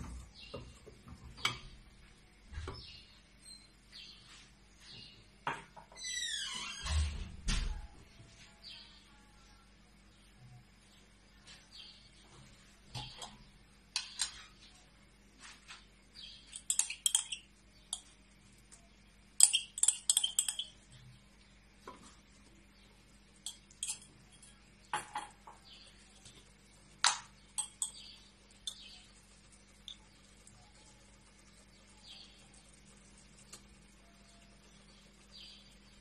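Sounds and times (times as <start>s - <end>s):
spoon clinking and scraping glass: 16.5s - 18.1s, 19.4s - 20.8s, 23.4s - 25.2s, 27.6s - 29.0s.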